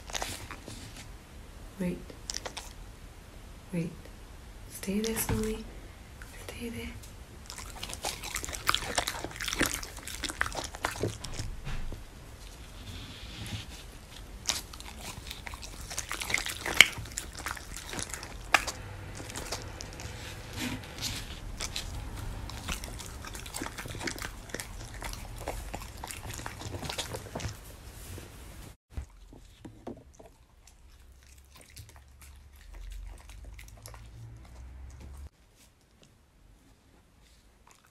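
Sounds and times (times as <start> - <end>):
dog chewing meat: 0.0 - 1.0, 2.2 - 2.8, 7.3 - 28.1, 29.0 - 35.3.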